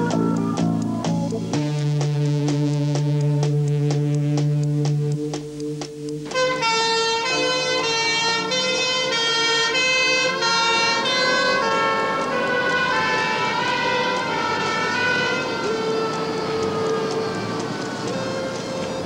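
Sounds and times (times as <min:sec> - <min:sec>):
ambulance siren: 0:06.3 - 0:19.0.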